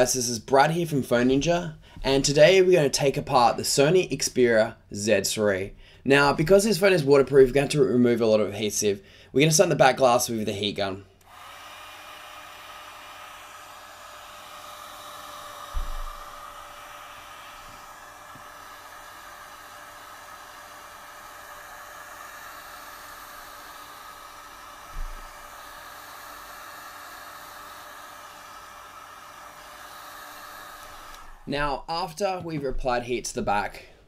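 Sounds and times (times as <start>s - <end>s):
heat gun blowing air: 11.2s - 32.8s.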